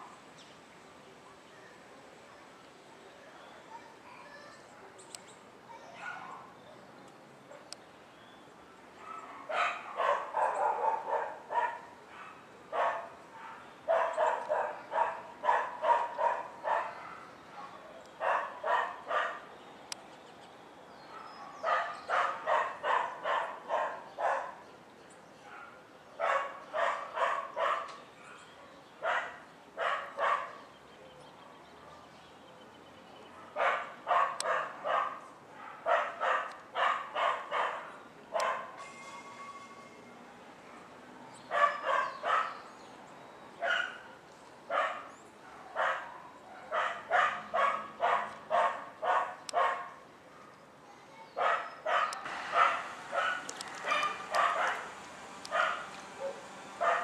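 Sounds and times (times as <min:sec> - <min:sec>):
small dog barking: 0:05.9 - 0:06.5, 0:09.0 - 0:19.5, 0:21.1 - 0:24.6, 0:25.4 - 0:30.6, 0:33.3 - 0:38.8, 0:41.5 - 0:42.6, 0:43.6 - 0:50.5, 0:51.4 - 0:57.0.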